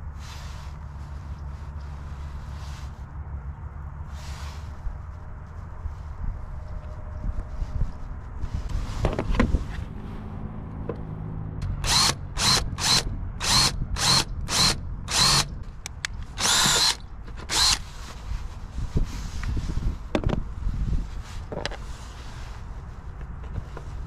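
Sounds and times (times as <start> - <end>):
cordless drill drilling metal: 11.7 - 15.5, 16.4 - 17.8.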